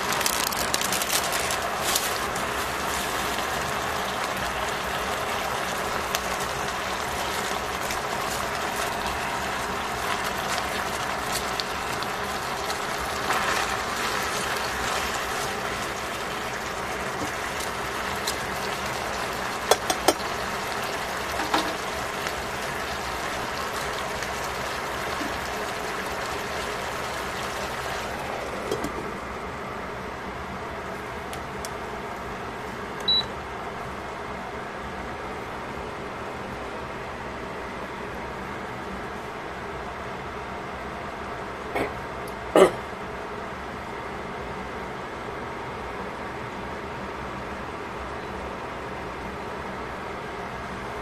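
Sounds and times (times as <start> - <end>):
food sizzling in a pot: 0.0 - 29.0.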